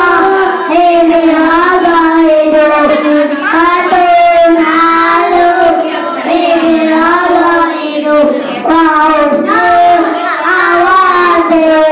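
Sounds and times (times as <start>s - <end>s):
young children singing: 0.0s - 11.9s.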